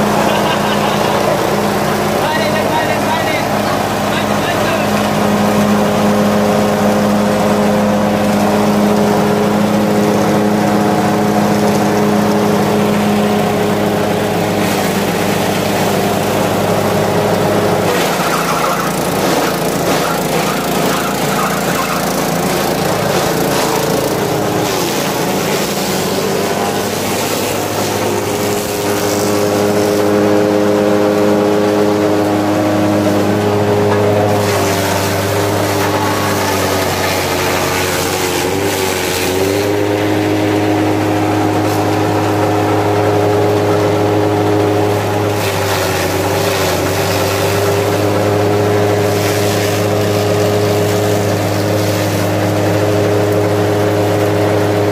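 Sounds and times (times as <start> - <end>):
grass chopper clattering: 0.0 - 54.9
small petrol engine running: 0.0 - 54.9.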